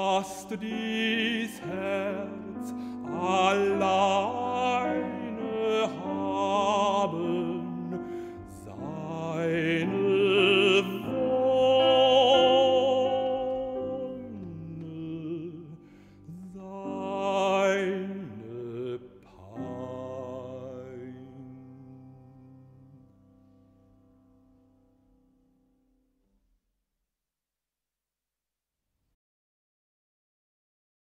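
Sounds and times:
man singing with vibrato: 0.0s - 23.0s
piano accompaniment: 0.0s - 25.8s.

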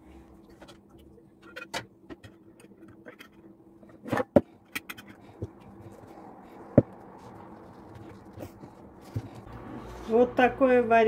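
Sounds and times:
soft handling rustle: 5.2s - 10.2s.

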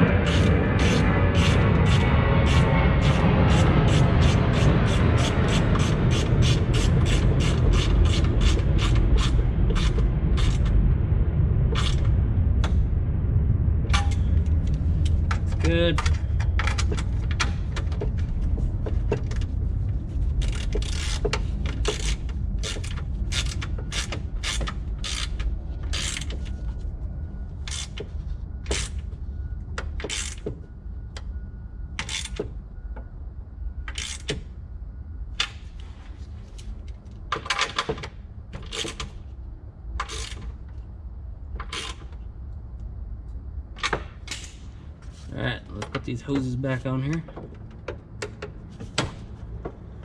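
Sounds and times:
steady low rumble: 0.0s - 37.3s, 38.1s - 50.0s
ratchet wrench clicking: 20.4s - 26.4s.

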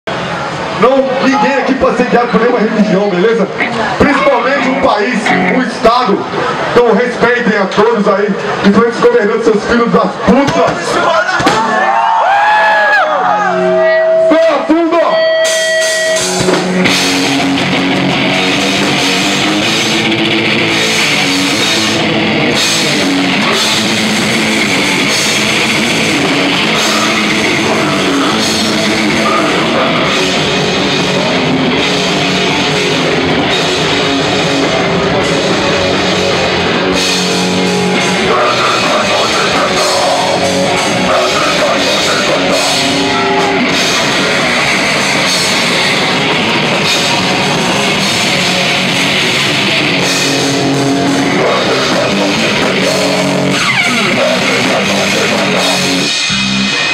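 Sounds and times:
heavy metal band playing: 0.1s - 56.9s.

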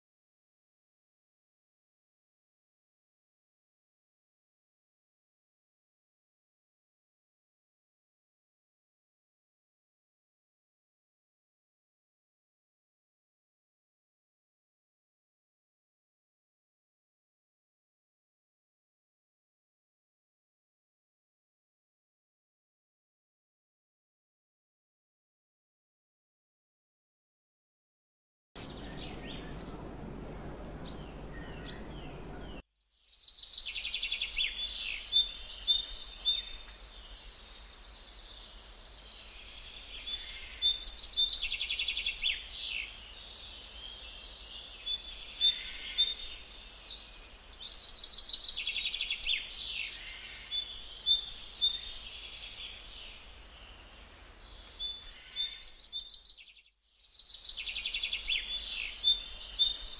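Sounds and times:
low steady hum: 28.6s - 32.6s
small birds chirping and trilling: 28.6s - 59.9s.

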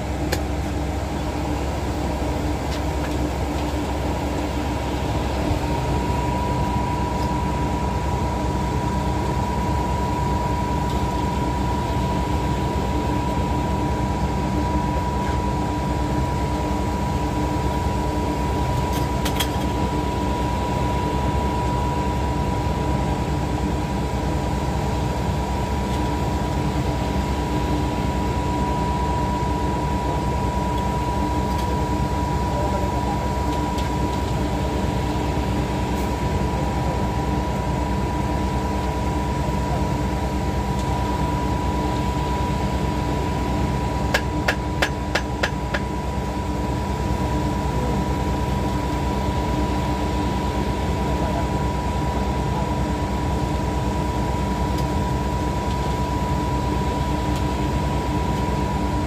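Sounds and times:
concrete pump diesel drone: 0.0s - 59.0s
high whine: 0.0s - 59.0s.

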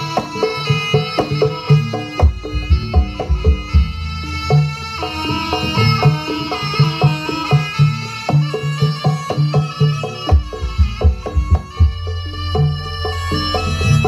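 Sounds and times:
fast repeated melodic notes: 0.0s - 14.0s
hand drums beating: 0.0s - 14.0s
reedy wind instrument: 0.0s - 14.0s.

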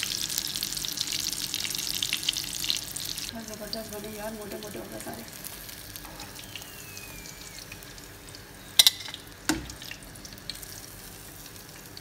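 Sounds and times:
food deep-frying in oil: 0.0s - 12.0s
metal tongs clinking: 8.8s - 9.2s.

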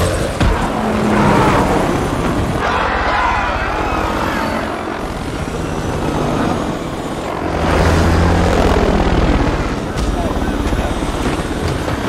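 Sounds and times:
helicopter rotor chopping: 0.0s - 12.0s.

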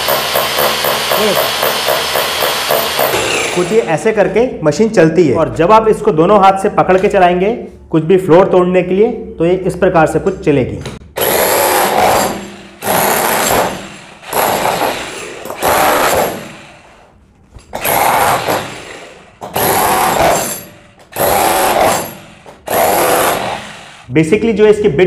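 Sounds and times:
demolition hammer breaking concrete: 0.0s - 3.8s, 11.2s - 16.8s, 17.7s - 23.7s.

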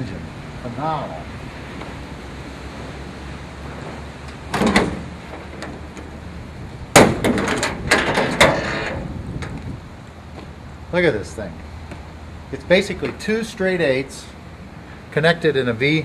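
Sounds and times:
car hood clunk: 4.5s - 5.8s, 6.9s - 9.6s
hood latches rattling clicks: 7.0s - 9.6s.

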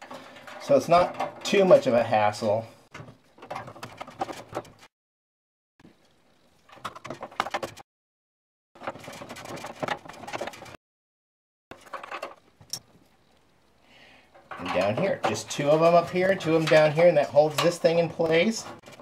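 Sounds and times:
metal parts clicking and scraping: 0.0s - 4.9s, 11.7s - 12.8s, 14.3s - 19.0s.

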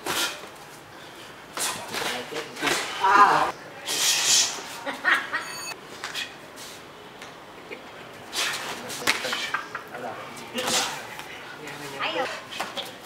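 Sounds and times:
sharp hissing exhalations: 3.8s - 4.6s.

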